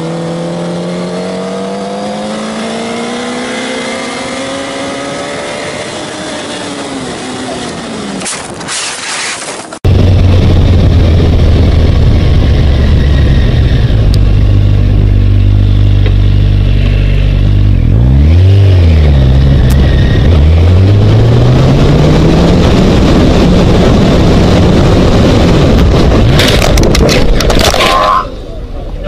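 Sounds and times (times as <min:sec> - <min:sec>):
motorcycle engine revving: 0:00.0 - 0:27.8
wind noise: 0:08.0 - 0:15.7, 0:19.1 - 0:28.8
collision cracks: 0:26.2 - 0:28.2.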